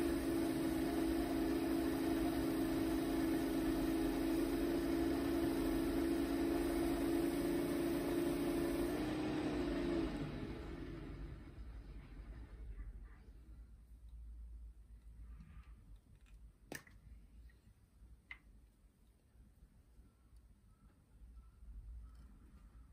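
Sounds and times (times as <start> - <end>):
electric spindle motor humming: 0.0 - 11.4.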